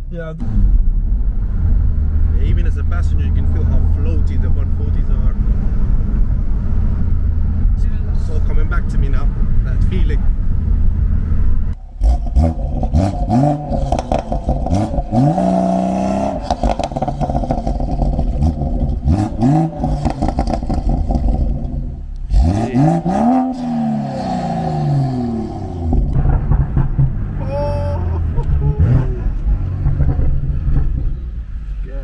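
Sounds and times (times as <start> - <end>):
car engine revving through gears: 12.0 - 27.2.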